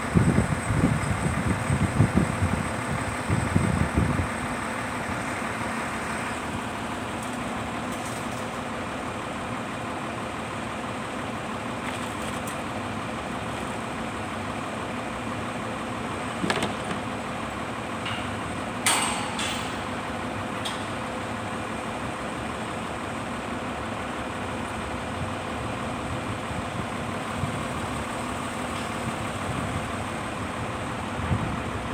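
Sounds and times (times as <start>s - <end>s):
diesel engine running: 0.0s - 31.9s
steel striking steel clanks: 18.0s - 19.9s.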